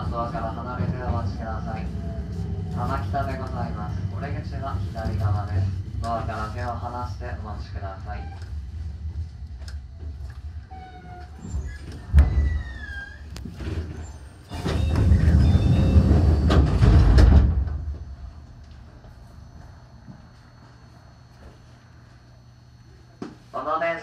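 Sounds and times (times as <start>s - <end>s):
low hum: 0.0s - 23.2s.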